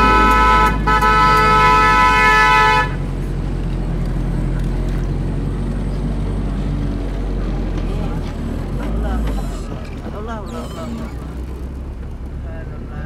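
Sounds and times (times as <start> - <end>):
car horn blast: 0.0 - 3.0.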